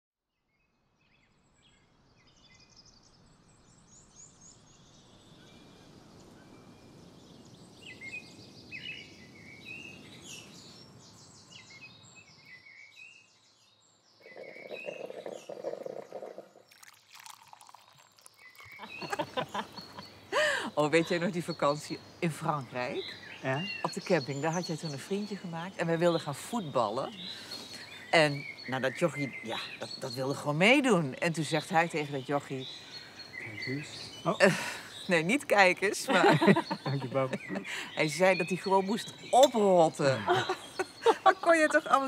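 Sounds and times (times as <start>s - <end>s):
small birds chirping: 1.0s - 42.0s
low pulsing bird call: 14.2s - 30.6s.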